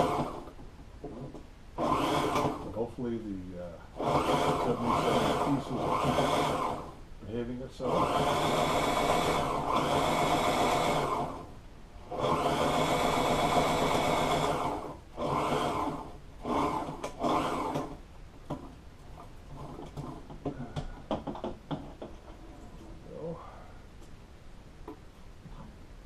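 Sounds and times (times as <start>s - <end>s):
sewing machine stitching: 0.0s - 0.5s, 1.1s - 2.8s, 3.9s - 7.0s, 7.8s - 18.6s.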